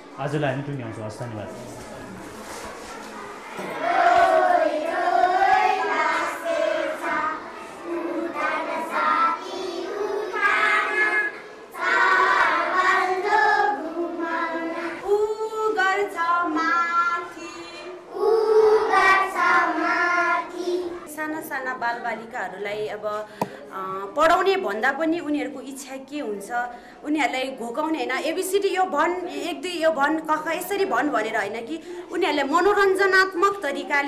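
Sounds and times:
children singing in unison: 0:03.4 - 0:21.1.

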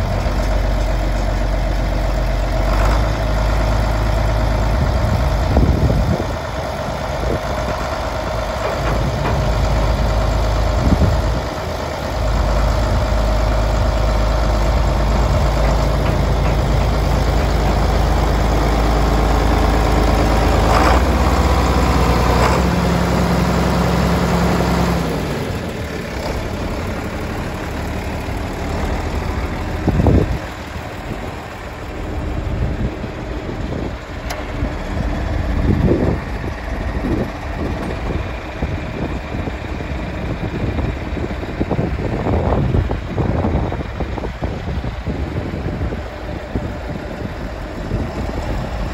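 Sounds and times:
tractor diesel engine idling: 0:00.0 - 0:48.9.

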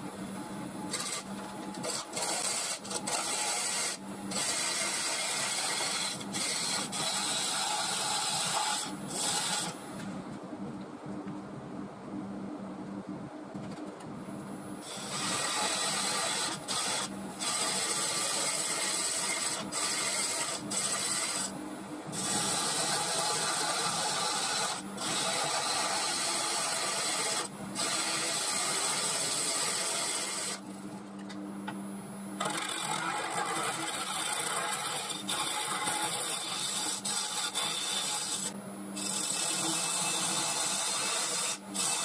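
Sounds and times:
lathe tool cutting wood: 0:00.9 - 0:09.8, 0:14.8 - 0:30.6, 0:32.4 - 0:42.0
lathe motor hum: 0:14.8 - 0:31.0, 0:32.4 - 0:42.0.

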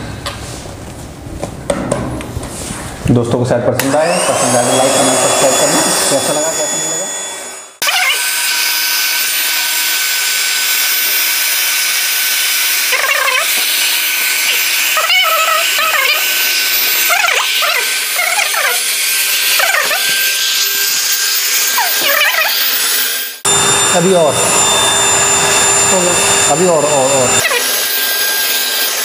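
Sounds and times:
electric air pump running: 0:03.8 - 0:29.0
short wavering squeaks: 0:06.8 - 0:08.2, 0:12.9 - 0:13.6, 0:14.4 - 0:20.8, 0:21.7 - 0:22.8.

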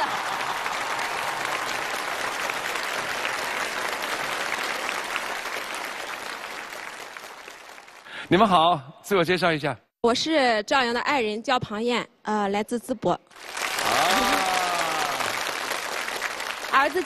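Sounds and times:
audience applauding: 0:00.0 - 0:08.2, 0:13.4 - 0:17.0.

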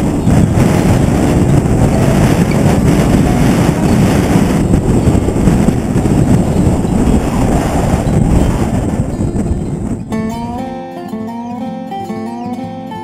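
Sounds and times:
wind buffeting microphone: 0:00.0 - 0:12.7.

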